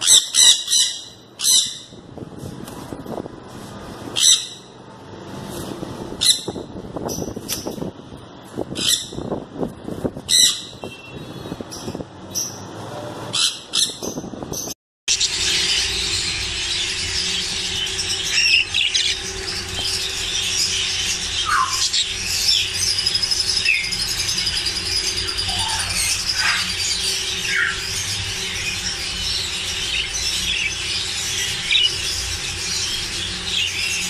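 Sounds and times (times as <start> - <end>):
budgerigars chattering: 15.2 - 34.0.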